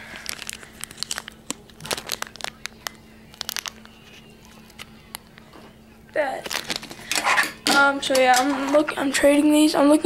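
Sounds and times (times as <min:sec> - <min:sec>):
plastic bag crinkling: 0:00.0 - 0:05.4, 0:06.2 - 0:07.8.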